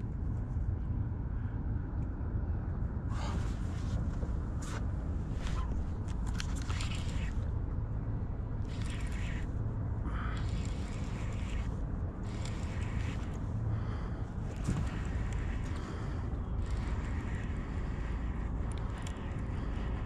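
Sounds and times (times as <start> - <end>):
wind rumble on microphone: 0.0 - 20.0
fishing reel winding: 6.1 - 7.4, 8.6 - 9.5, 10.1 - 13.4, 16.6 - 20.0.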